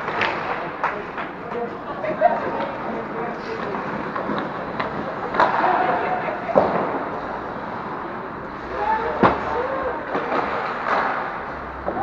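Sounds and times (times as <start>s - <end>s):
stick hitting puck: 0.0s - 1.6s, 3.6s - 5.9s, 10.1s - 12.0s.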